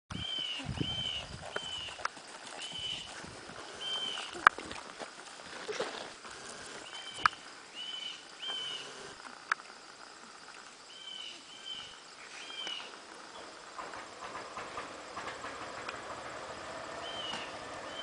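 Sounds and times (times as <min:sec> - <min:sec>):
horse walking through long grass: 0:00.2 - 0:07.2.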